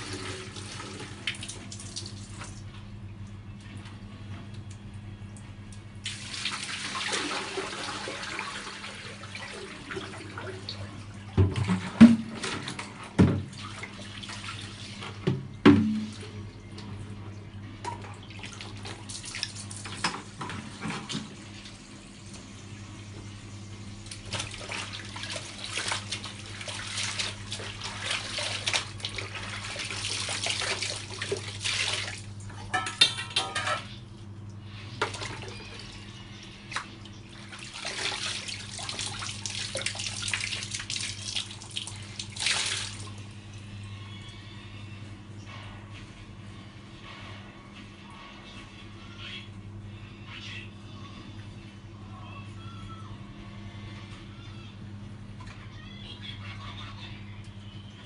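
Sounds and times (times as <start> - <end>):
water splashing in a basin: 6.0 - 17.0, 17.8 - 21.7, 24.0 - 33.5, 35.0 - 43.3
steady low hum: 42.9 - 58.0.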